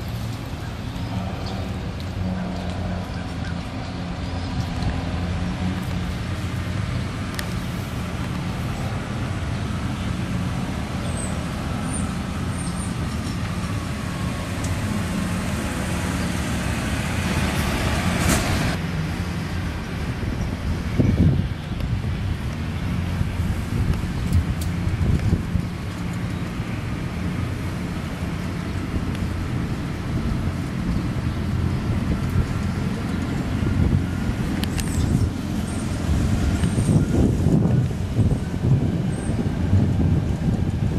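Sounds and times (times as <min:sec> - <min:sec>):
low outdoor rumble: 0:00.0 - 0:40.9
road traffic noise: 0:00.0 - 0:40.9
vehicle engine humming: 0:00.0 - 0:40.9
loud rushing noise: 0:03.7 - 0:25.9.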